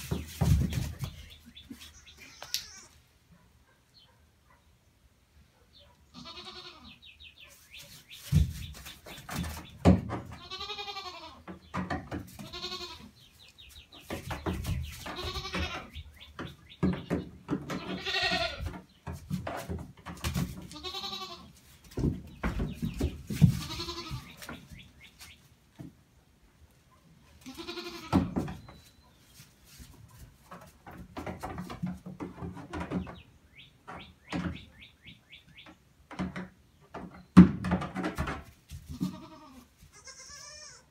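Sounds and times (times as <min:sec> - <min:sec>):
goat kids bleating: 0:01.8 - 0:03.1, 0:06.1 - 0:07.1, 0:10.3 - 0:11.5, 0:12.4 - 0:13.2, 0:15.0 - 0:16.0, 0:17.7 - 0:18.8, 0:20.7 - 0:21.6, 0:23.5 - 0:24.5, 0:27.4 - 0:28.2, 0:38.9 - 0:40.9.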